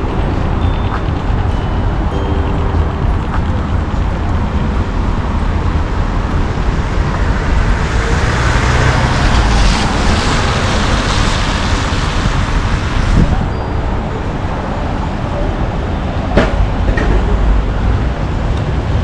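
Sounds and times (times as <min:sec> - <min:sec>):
vehicle passing close: 0:00.0 - 0:13.5
traffic rumble: 0:00.0 - 0:19.0.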